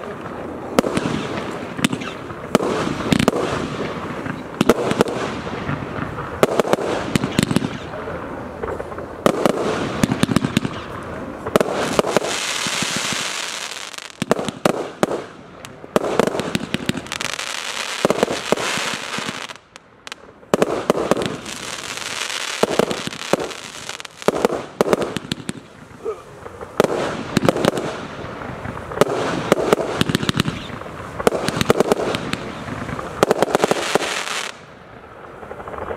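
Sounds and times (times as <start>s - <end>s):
firework bangs: 0.0s - 35.9s
fireworks hissing: 8.7s - 34.7s.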